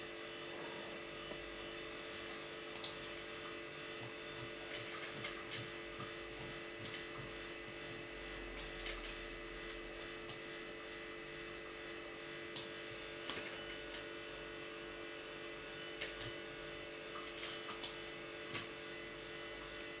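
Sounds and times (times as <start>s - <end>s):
computer electrical hum: 0.0s - 20.0s
mouse clicks: 2.8s - 3.0s.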